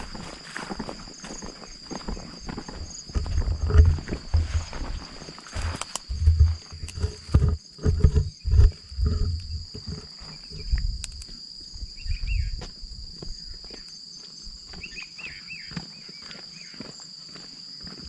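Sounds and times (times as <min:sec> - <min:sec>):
high-pitched insect drone: 0:00.0 - 0:18.0
wind buffeting microphone: 0:02.8 - 0:13.4.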